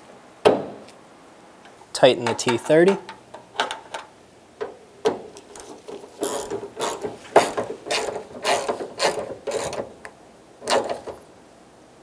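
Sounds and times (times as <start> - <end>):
hand ratchet clicking: 6.2 - 9.9, 10.6 - 11.2.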